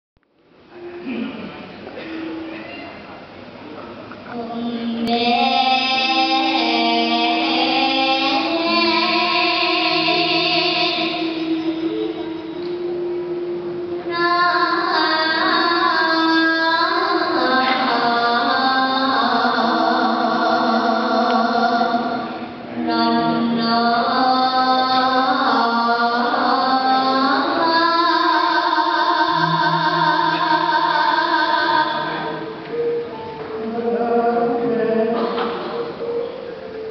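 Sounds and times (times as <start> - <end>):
child singing into a microphone: 4.3 - 12.6, 13.9 - 33.0
low steady tone: 6.2 - 16.0.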